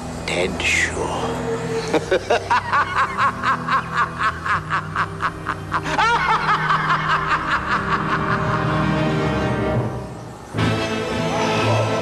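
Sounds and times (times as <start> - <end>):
man laughing sinisterly: 1.6 - 9.0.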